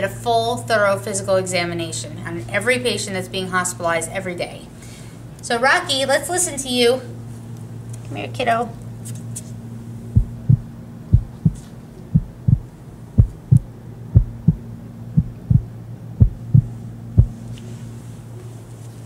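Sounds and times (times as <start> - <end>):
steady low hum: 0.0 - 19.0
heartbeat through stethoscope: 10.1 - 17.4.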